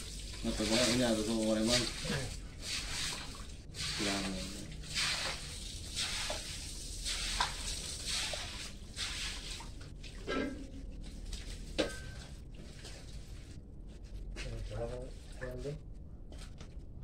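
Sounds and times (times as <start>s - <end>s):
hose water splashing on concrete: 0.0s - 13.6s.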